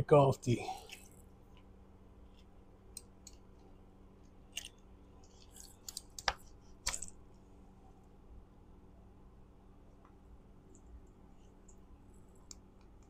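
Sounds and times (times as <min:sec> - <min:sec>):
small plastic clicks and taps: 0:04.6 - 0:07.1.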